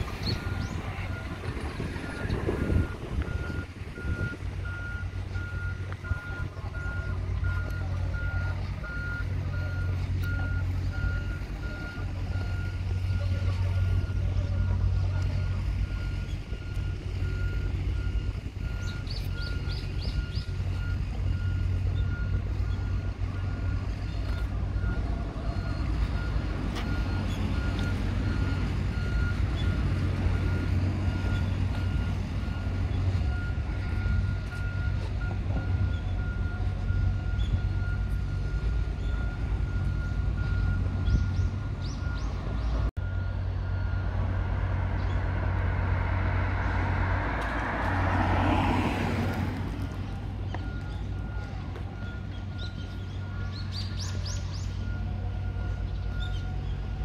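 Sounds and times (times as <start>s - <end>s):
engine humming: 0.0s - 57.0s.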